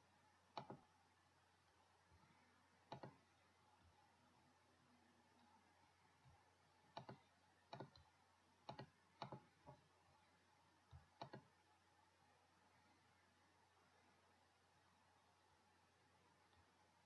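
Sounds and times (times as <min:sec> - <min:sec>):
computer mouse clicks: 0:00.5 - 0:00.9, 0:02.8 - 0:03.4, 0:06.2 - 0:09.9, 0:10.8 - 0:11.6.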